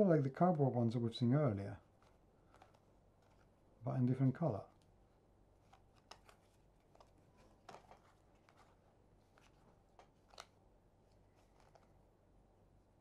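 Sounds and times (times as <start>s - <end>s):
cards clicking and rustling: 1.9s - 3.6s, 5.6s - 12.0s.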